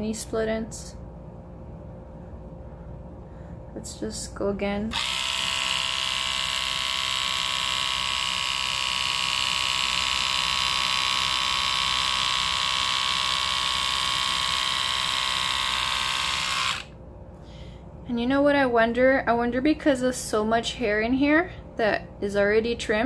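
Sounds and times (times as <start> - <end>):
trimmer motor whine: 4.9 - 17.0.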